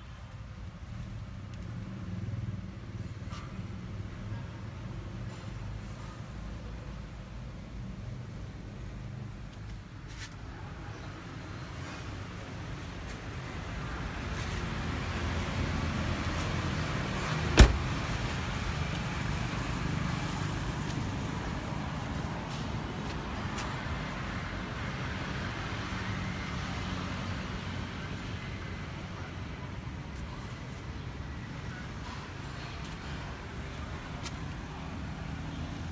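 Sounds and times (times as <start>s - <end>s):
car door shutting: 17.4s - 18.1s.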